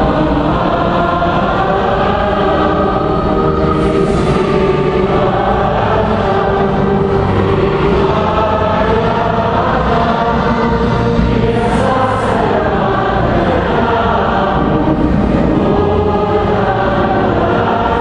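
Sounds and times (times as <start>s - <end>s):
choir singing liturgical music: 0.0s - 18.0s.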